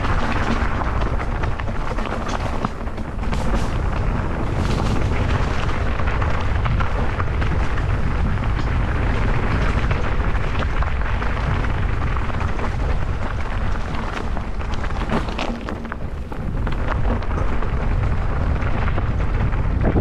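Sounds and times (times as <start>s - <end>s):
bike clicks and rattles: 0.0s - 20.0s
wind buffeting a microphone: 0.0s - 20.0s.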